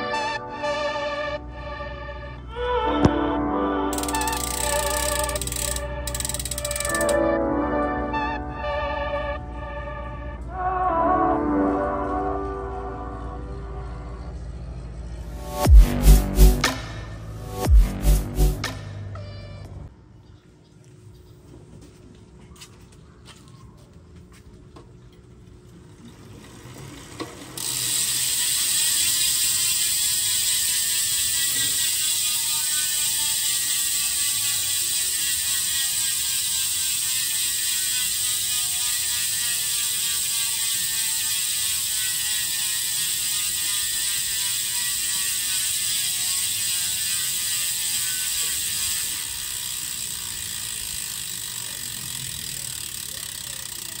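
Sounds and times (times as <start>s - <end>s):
bicycle freewheel ratchet clicking: 3.9s - 7.4s, 15.2s - 19.0s, 25.7s - 54.0s.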